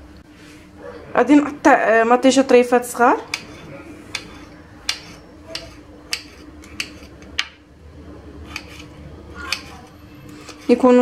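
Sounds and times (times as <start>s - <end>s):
knife tapping cutting board: 3.3s - 7.6s.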